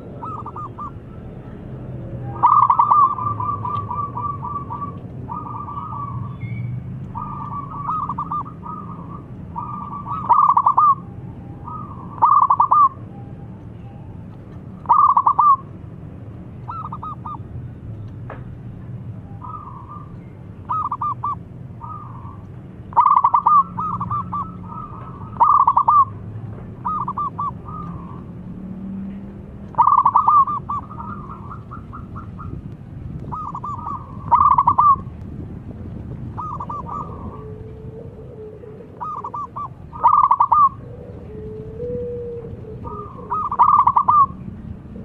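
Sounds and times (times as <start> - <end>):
dove cooing: 0.0 - 1.4, 2.2 - 13.0, 14.8 - 15.7, 16.7 - 17.4, 19.4 - 28.4, 29.7 - 32.6, 33.2 - 35.1, 36.3 - 44.5.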